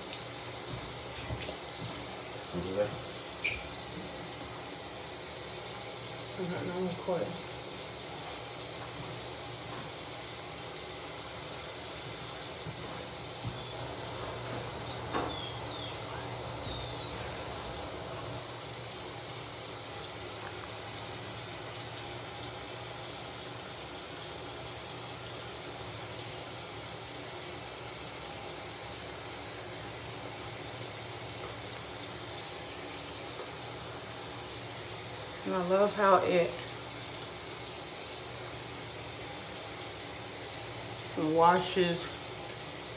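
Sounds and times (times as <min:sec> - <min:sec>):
sink tap running: 0:00.0 - 0:26.0.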